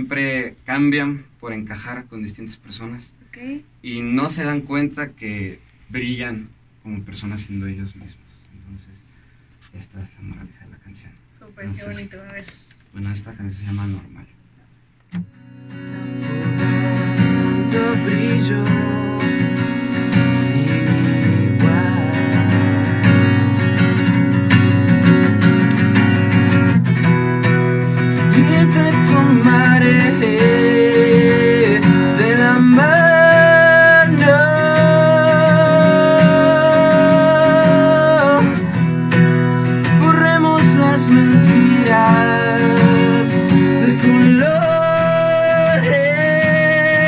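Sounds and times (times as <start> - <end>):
strummed acoustic guitar: 15.1 - 47.0
man singing: 15.7 - 24.1, 28.2 - 38.9, 39.8 - 47.0.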